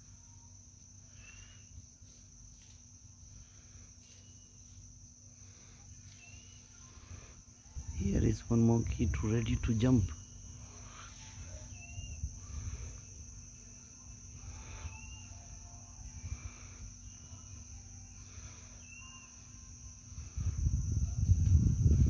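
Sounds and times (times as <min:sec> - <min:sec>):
high-pitched insect buzzing: 0:00.0 - 0:22.0
low rumbling on microphone: 0:11.9 - 0:13.6, 0:20.1 - 0:22.0.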